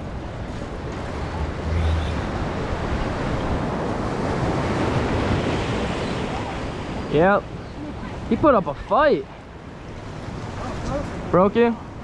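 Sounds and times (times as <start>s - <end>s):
ocean surf washing: 0.0s - 12.0s
low rumble: 1.0s - 3.7s.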